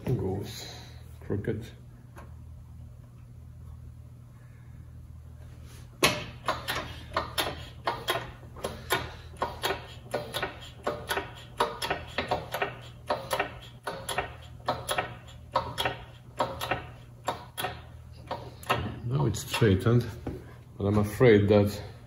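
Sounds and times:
hydraulic hand pump clacking: 6.2s - 19.8s.

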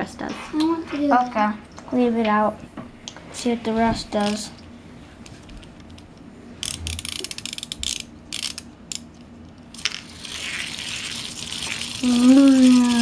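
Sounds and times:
ratcheting clicks of pull-cord toy: 6.6s - 9.0s
toy whirring as it spins: 6.6s - 9.1s, 9.7s - 13.0s.

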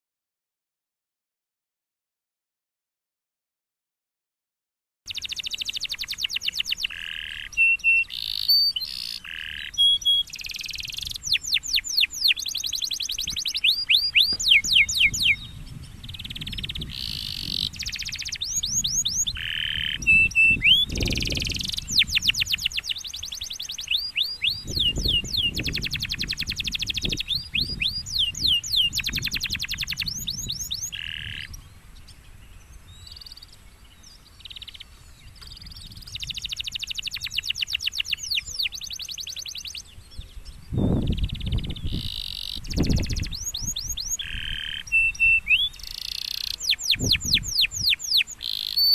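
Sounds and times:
canary singing trills: 5.1s - 48.9s.

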